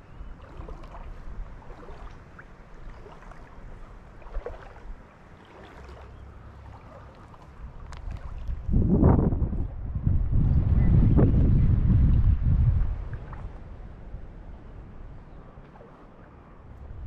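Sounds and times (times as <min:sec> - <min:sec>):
shallow water swishing around legs: 0:00.0 - 0:09.0, 0:12.8 - 0:17.0.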